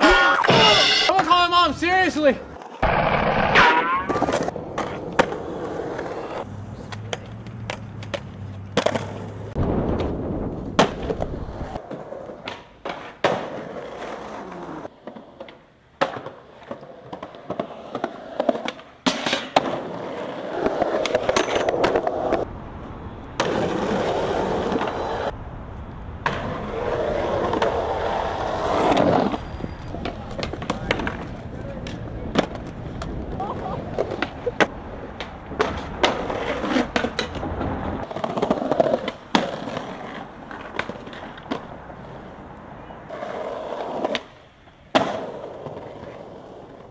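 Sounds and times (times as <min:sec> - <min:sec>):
skateboards rolling on concrete: 0:00.0 - 0:46.9
skateboard clacks and landings: 0:02.6 - 0:22.5, 0:43.2 - 0:46.9.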